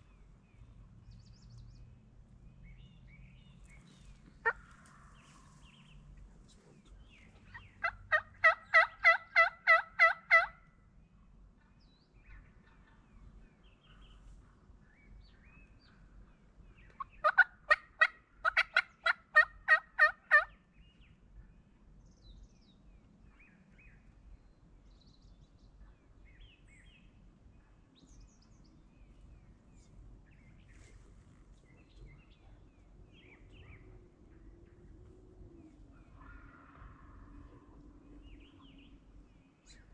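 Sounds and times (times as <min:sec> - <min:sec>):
turkey gobbling: 0:04.4 - 0:05.5, 0:07.5 - 0:10.6, 0:17.0 - 0:20.5.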